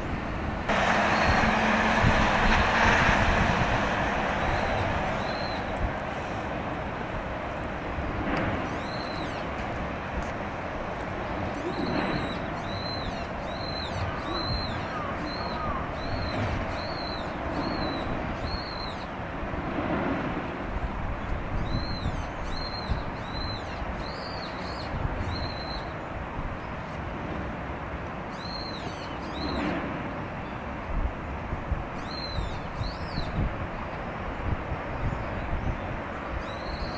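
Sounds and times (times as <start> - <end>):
steady low rumble: 0.0 - 18.4.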